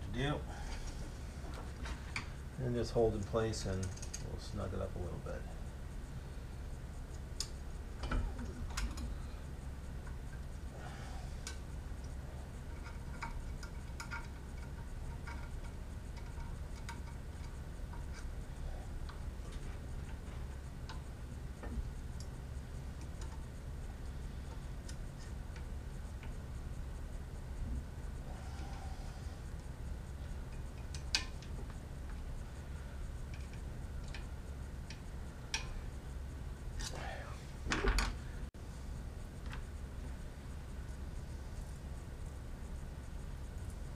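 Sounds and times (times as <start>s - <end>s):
steady low hum: 0.0s - 43.9s
small metallic clicks and taps: 11.4s - 18.3s, 30.5s - 32.2s, 33.2s - 35.8s.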